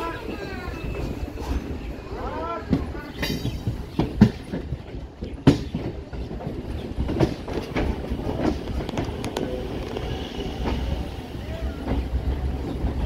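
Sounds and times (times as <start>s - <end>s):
train wheels clattering over rail joints: 2.6s - 13.0s.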